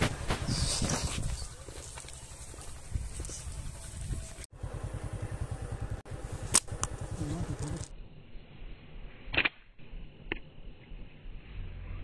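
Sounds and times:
motorcycle engine idling: 0:00.1 - 0:07.9
loud sharp snap: 0:09.3 - 0:09.7.

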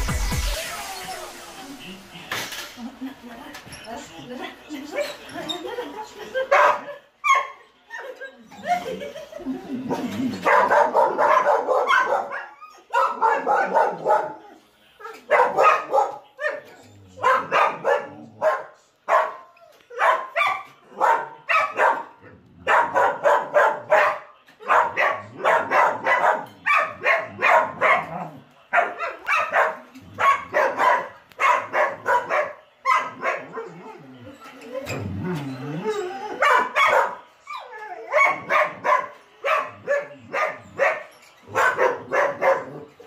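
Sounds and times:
dog barking: 0:06.4 - 0:07.6, 0:09.9 - 0:33.8, 0:36.4 - 0:37.3, 0:38.1 - 0:42.9.

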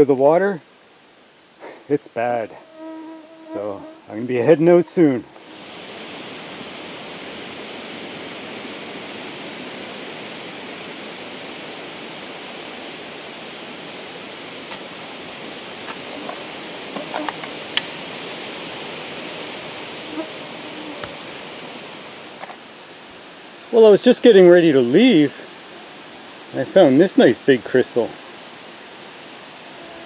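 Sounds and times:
wind through woods: 0:00.0 - 0:30.0
hand shovel digging stony soil: 0:14.7 - 0:15.2, 0:15.8 - 0:18.0, 0:21.0 - 0:22.6.

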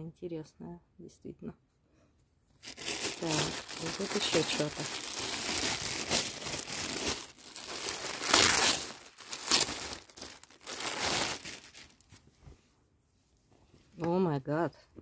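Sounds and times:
plastic bag crinkling: 0:02.6 - 0:12.2.

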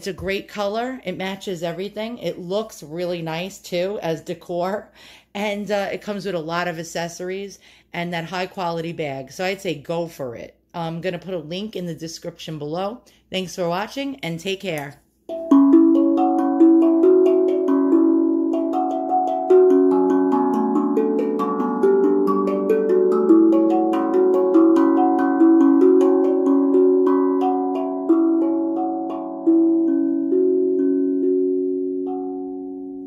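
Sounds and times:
steel tongue drum melody: 0:15.3 - 0:33.0.

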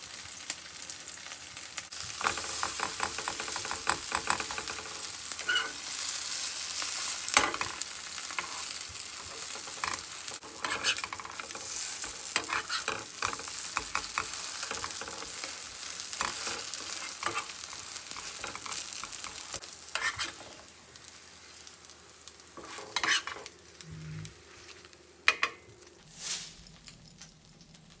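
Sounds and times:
pancakes sizzling in oil: 0:00.0 - 0:28.0
metal spatula clicking and scraping: 0:02.1 - 0:05.8, 0:06.9 - 0:20.5, 0:22.6 - 0:23.5.

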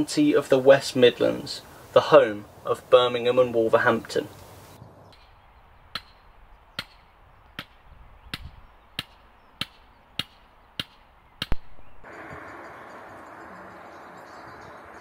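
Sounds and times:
steady rushing noise: 0:10.3 - 0:15.0.

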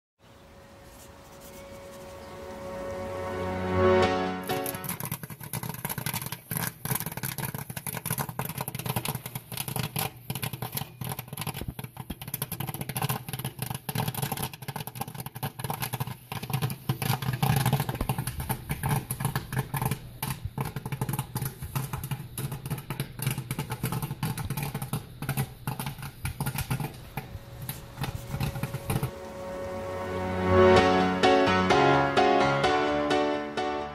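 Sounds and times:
popcorn kernels popping: 0:04.4 - 0:29.1
popped corn clattering: 0:04.4 - 0:29.2.

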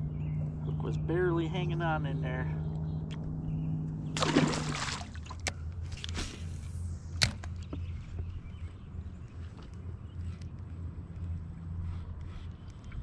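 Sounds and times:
steady low hum: 0:00.0 - 0:13.0
fish splashing into water: 0:04.2 - 0:05.5.

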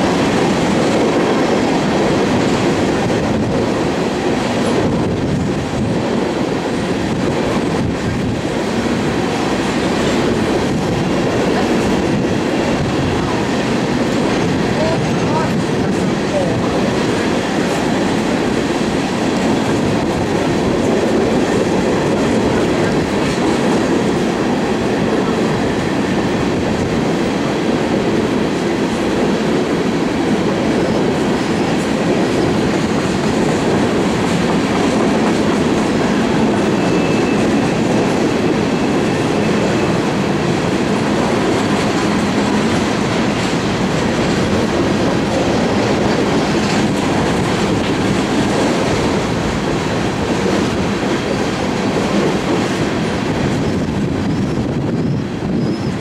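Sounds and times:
steel wheels clattering on rail: 0:00.0 - 0:56.0.

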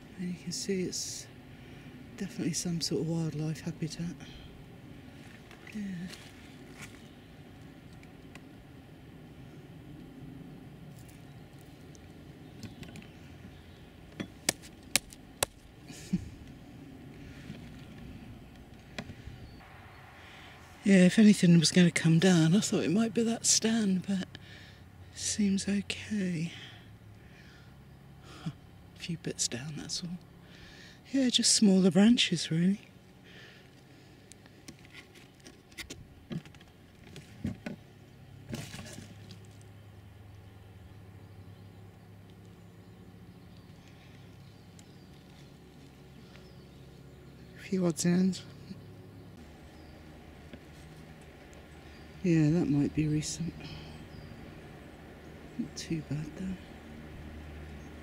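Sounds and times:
low steady rumble: 0:00.0 - 0:58.0.

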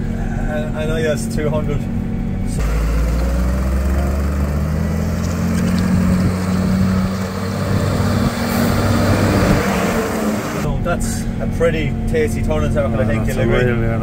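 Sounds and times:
tractor diesel engine running: 0:02.4 - 0:12.3
tyres hissing on wet road: 0:02.6 - 0:10.7.

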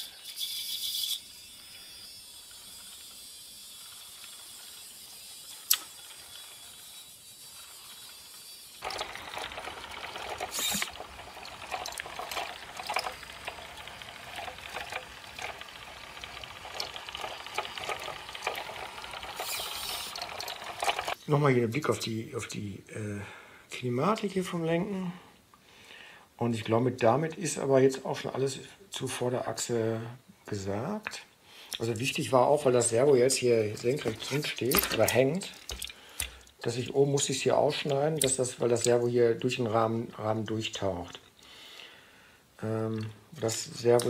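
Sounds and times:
model truck gears rattling: 0:00.0 - 0:21.2, 0:33.0 - 0:35.9
quiet hiss: 0:00.0 - 0:44.0
wheels clicking over stones: 0:00.2 - 0:21.2, 0:32.8 - 0:36.8.

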